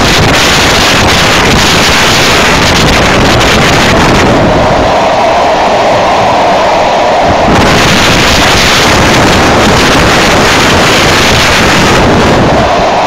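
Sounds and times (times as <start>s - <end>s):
train running noise: 0.0s - 13.0s
wind buffeting microphone: 0.0s - 13.0s.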